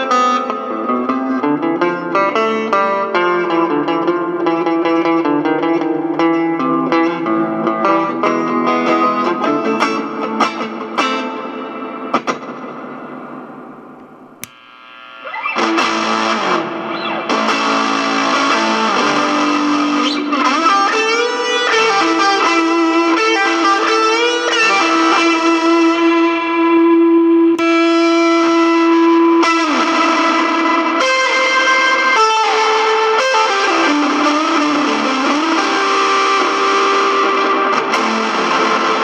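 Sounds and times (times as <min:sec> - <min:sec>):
distorted electric guitar: 0:00.0 - 0:39.0
switch click: 0:13.9 - 0:14.6.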